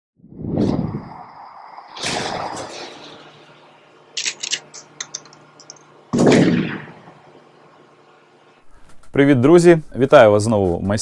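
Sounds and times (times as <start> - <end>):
faint low hum: 0.6 - 11.0
loud hit: 1.9 - 3.4, 6.1 - 7.2
sharp high clicks: 4.2 - 6.8.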